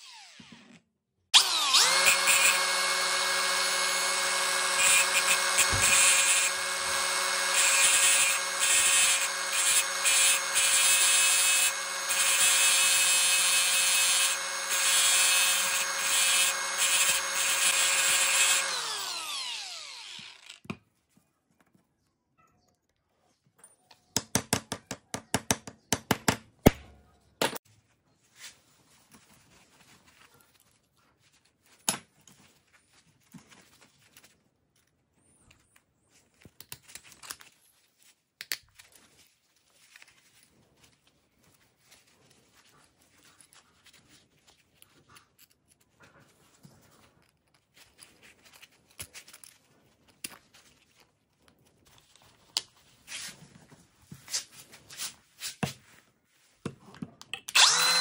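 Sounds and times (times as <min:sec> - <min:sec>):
rustling: 0:27.7 - 0:34.9.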